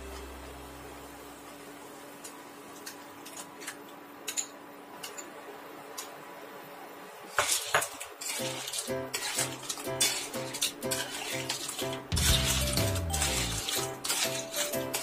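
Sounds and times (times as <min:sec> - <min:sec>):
metal spoon clinking and scraping: 0:07.4 - 0:15.0
background music: 0:11.8 - 0:15.0.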